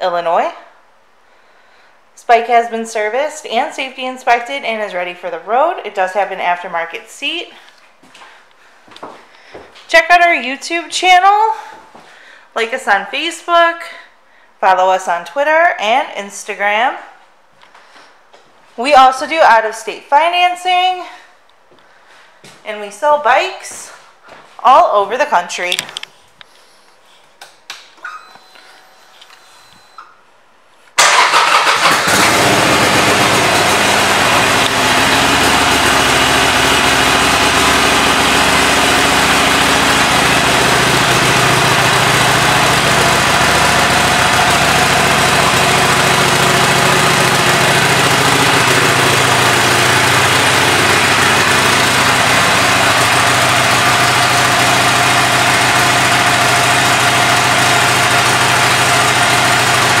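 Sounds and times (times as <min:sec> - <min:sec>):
motorcycle engine starting and idling: 0:31.0 - 1:00.0.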